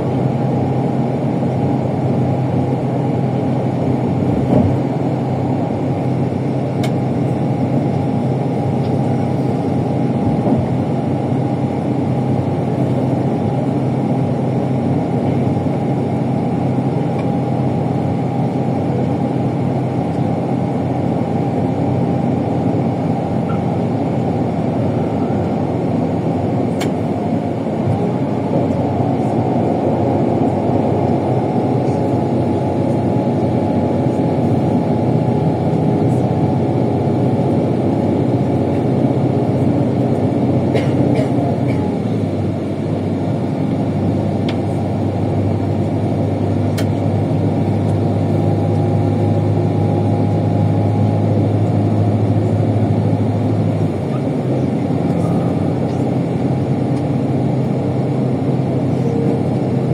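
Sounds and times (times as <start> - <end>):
bus engine and road noise: 0.0 - 59.9.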